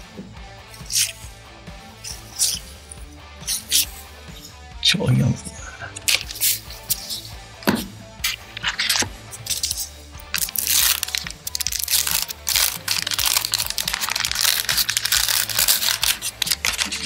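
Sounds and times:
background music: 0.0s - 17.0s
wax paper crinkling and tearing: 10.4s - 17.0s.

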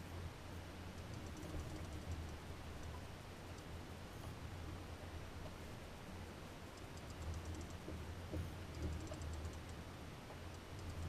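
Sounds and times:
fishing reel ticking: 0.9s - 3.7s, 6.8s - 11.0s.

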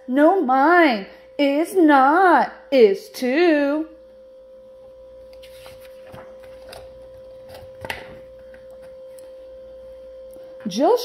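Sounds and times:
steady humming tone: 0.0s - 11.0s
page turning rustle: 5.3s - 9.0s.

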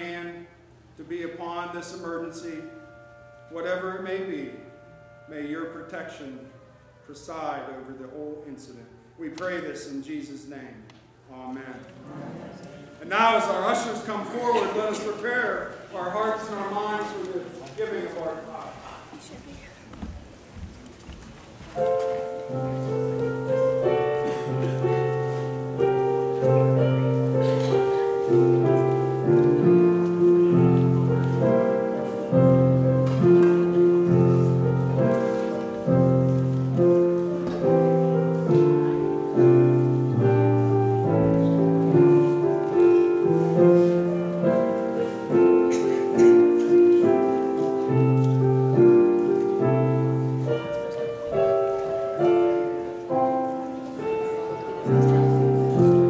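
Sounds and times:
piano chords: 0.0s - 10.5s, 12.1s - 18.8s, 20.1s - 56.0s.

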